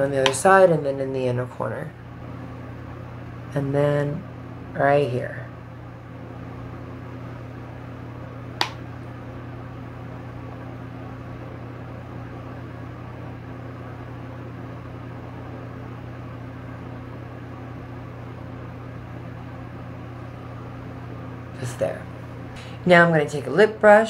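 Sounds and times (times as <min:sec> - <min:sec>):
low room hum: 0:00.0 - 0:24.0
sharp click: 0:08.6 - 0:08.8.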